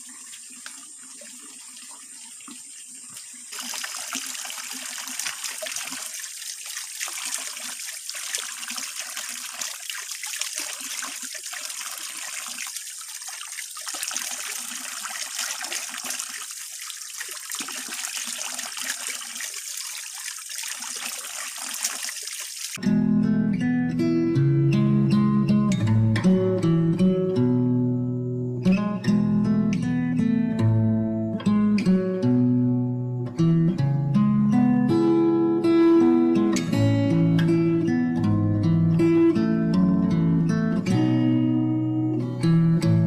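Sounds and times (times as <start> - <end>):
water pouring from a spout: 0.0 - 22.8
water splashing over hands: 3.5 - 22.8.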